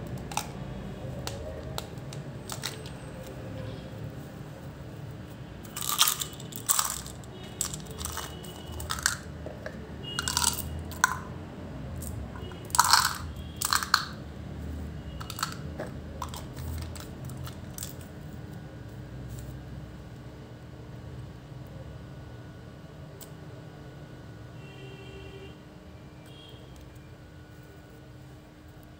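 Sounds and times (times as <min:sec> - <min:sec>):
candies rattling in plastic bottle: 0:01.7 - 0:03.0, 0:05.7 - 0:09.3, 0:10.1 - 0:11.3, 0:12.0 - 0:14.2, 0:15.2 - 0:18.1.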